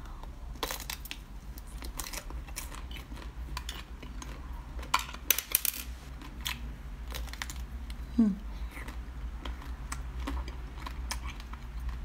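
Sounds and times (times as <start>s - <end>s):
crunching frozen strawberry: 0.5s - 5.3s, 6.1s - 8.0s.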